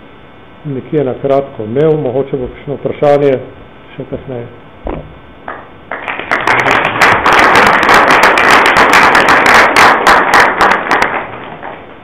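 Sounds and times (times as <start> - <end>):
audience applause: 5.5 - 11.8.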